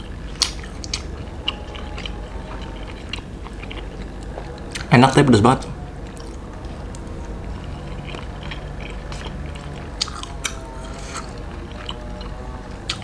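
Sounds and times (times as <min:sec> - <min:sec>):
person chewing food: 0:00.0 - 0:13.0.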